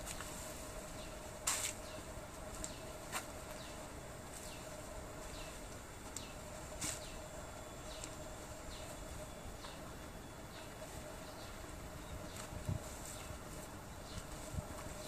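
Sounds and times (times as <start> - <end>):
birds chirping: 0.0 - 15.0
insects humming: 0.0 - 15.0.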